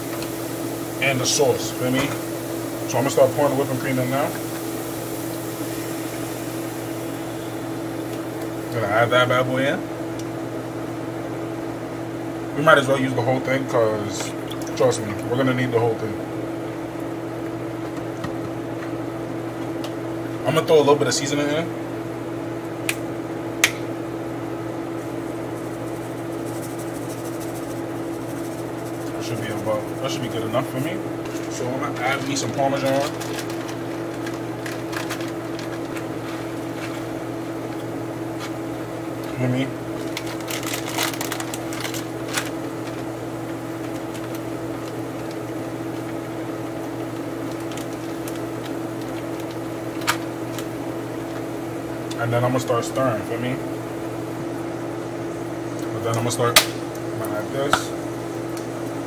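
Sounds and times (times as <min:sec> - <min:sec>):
steady low hum: 0:00.0 - 0:59.0
seasoning rattling in shaker: 0:25.2 - 0:38.6, 0:39.9 - 0:46.2, 0:47.1 - 0:51.5
plastic bag crinkling: 0:29.1 - 0:38.6, 0:39.6 - 0:46.3, 0:47.1 - 0:51.4.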